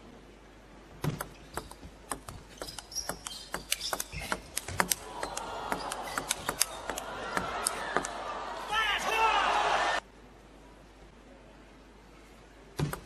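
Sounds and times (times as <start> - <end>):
table tennis ball clicking: 1.0 - 8.2.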